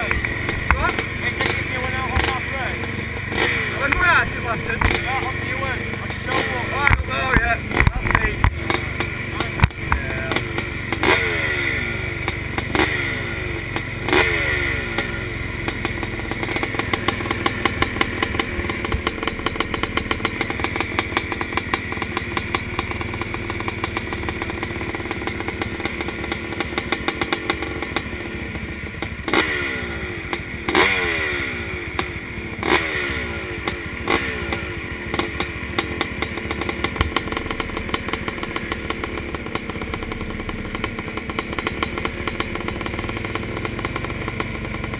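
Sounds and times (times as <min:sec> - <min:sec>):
motorbike engines idling: 0:00.0 - 0:44.9
motorbike throttle blips: 0:00.0 - 0:44.9.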